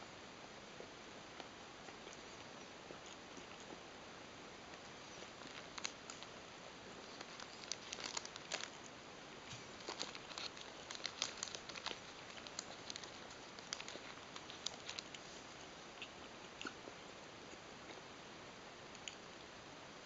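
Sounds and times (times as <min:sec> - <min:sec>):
paper wrapper crinkling: 0:04.8 - 0:06.4, 0:07.0 - 0:15.4.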